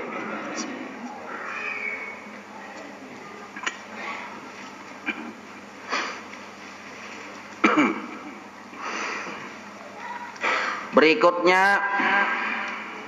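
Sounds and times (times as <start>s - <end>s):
man clearing throat: 5.0s - 5.4s, 7.6s - 8.3s.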